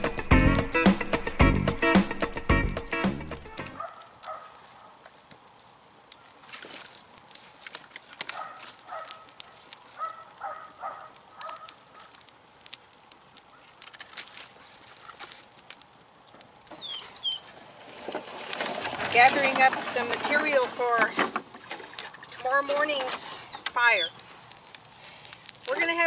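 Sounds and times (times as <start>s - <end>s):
campfire crackling and popping: 0.0s - 26.0s
bird chirp: 16.2s - 17.6s, 23.3s - 24.2s
animal calls: 16.7s - 17.6s.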